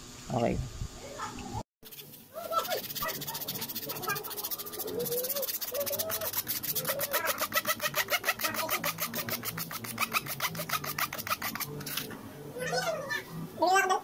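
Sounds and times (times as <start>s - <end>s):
sandpaper scraping wood: 1.8s - 12.1s.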